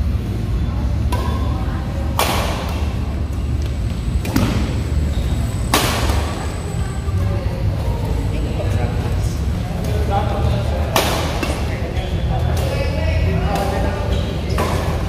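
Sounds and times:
racket striking shuttlecock: 0:01.1 - 0:01.5, 0:02.1 - 0:02.9, 0:05.7 - 0:06.3, 0:10.9 - 0:11.8, 0:13.5 - 0:15.0.

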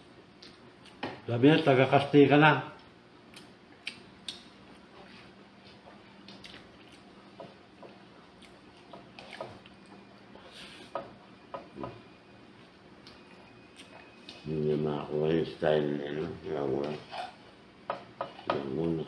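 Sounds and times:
wet chewing and mouth sounds: 0:06.2 - 0:07.1, 0:07.8 - 0:10.3, 0:12.5 - 0:14.4.

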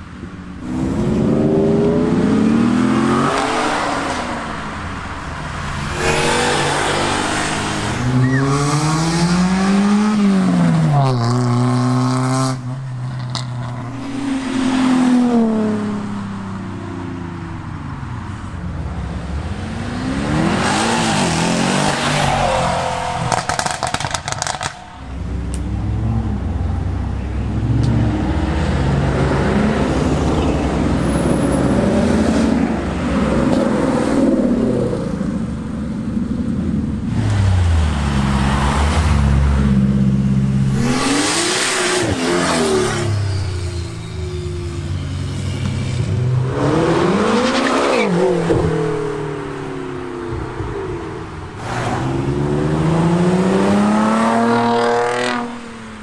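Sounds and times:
cars accelerating and revving past: 0:00.0 - 0:56.0.

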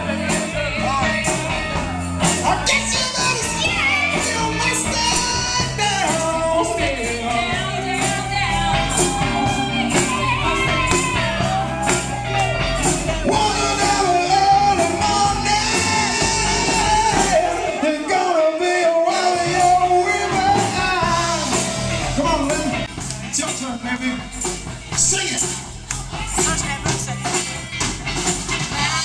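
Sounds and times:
live rock band playing: 0:00.0 - 0:18.2, 0:19.0 - 0:29.0
women singing into a microphone: 0:06.6 - 0:12.2.

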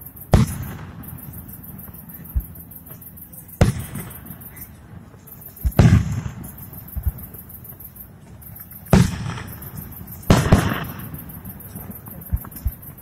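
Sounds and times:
firework bangs with rumble: 0:00.3 - 0:01.1, 0:03.6 - 0:04.3, 0:05.6 - 0:07.2, 0:08.9 - 0:11.3.

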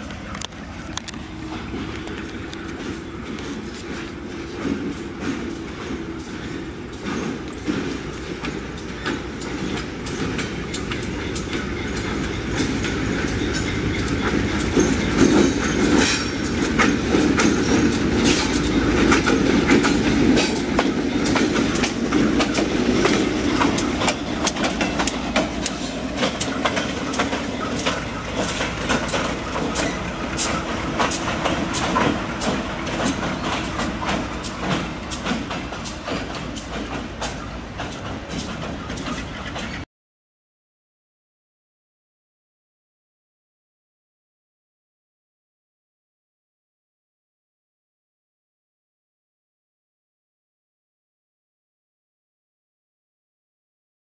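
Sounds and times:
wheels clicking over rail joints: 0:00.0 - 0:39.8
diesel locomotive rumbling: 0:00.0 - 0:39.9.

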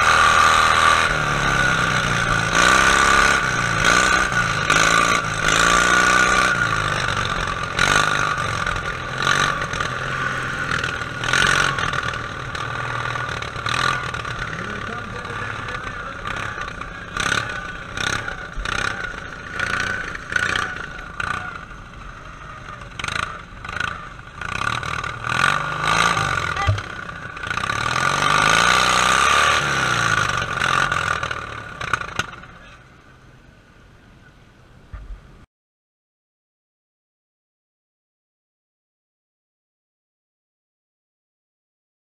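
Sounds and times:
lawn tractor engine revving: 0:00.0 - 0:32.5
knocks and clatter of bouncing tractor: 0:06.8 - 0:32.8.

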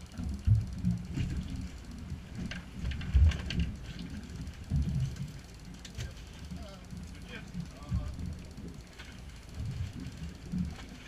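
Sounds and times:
faint clicks: 0:00.0 - 0:11.0.

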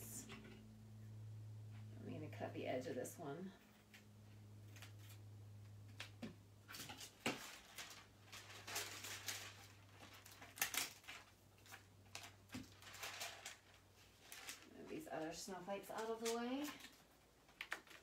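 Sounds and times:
low steady hum: 0:00.0 - 0:18.0
plastic and paper rustling: 0:05.9 - 0:18.0.

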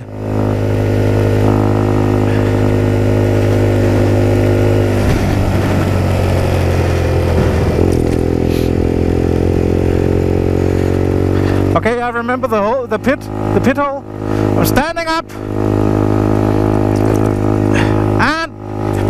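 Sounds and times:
motorcycle engine at speed: 0:00.0 - 0:19.0.

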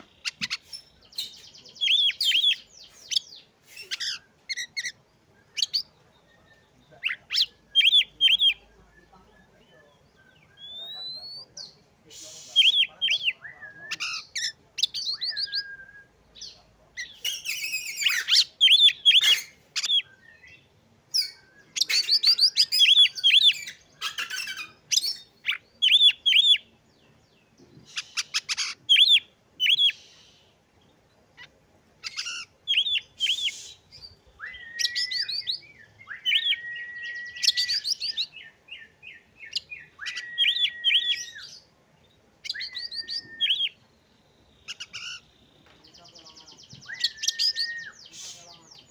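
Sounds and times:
bird chirping: 0:00.0 - 0:48.9
long level bird whistles: 0:15.0 - 0:16.2, 0:32.1 - 0:41.7, 0:42.4 - 0:43.8, 0:46.8 - 0:48.5.

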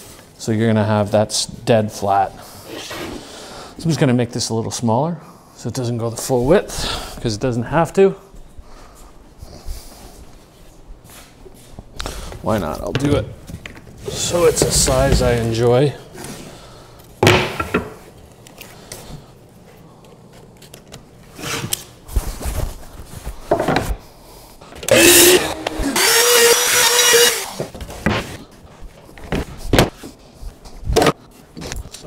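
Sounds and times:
miter saw cutting wood: 0:24.9 - 0:27.7.

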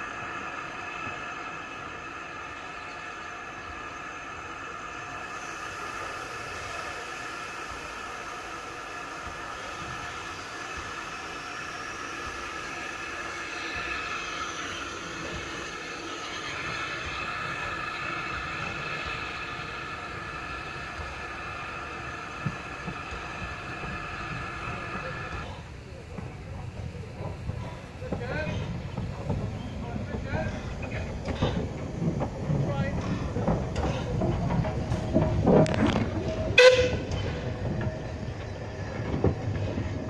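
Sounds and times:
steam train moving on track: 0:00.0 - 0:40.0.

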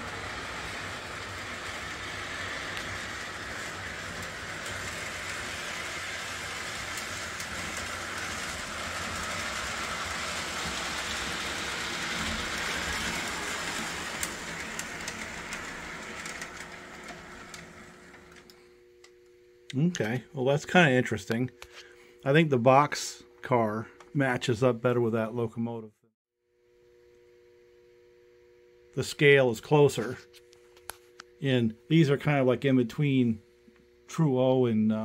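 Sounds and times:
wheels rumbling on rails: 0:00.0 - 0:18.3
model train motor hum: 0:00.0 - 0:18.5.

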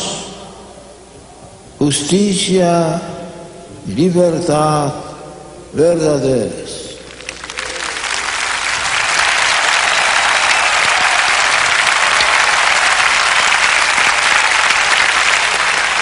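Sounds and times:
large crowd applauding: 0:07.1 - 0:16.0.

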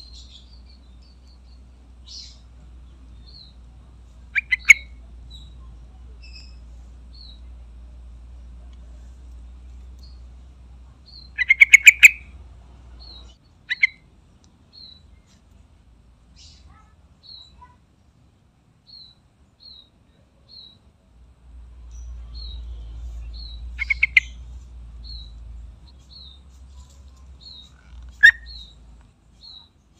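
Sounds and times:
faint high chirp: 0:04.4 - 0:07.5, 0:21.8 - 0:29.8.

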